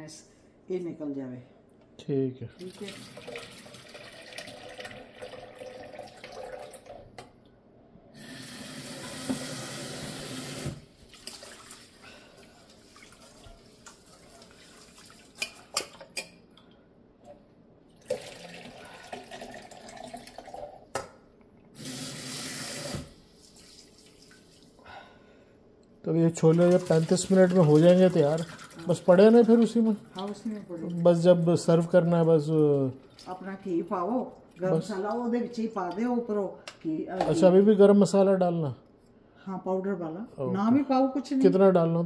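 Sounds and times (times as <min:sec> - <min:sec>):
tap running into pot: 0:09.2 - 0:09.5.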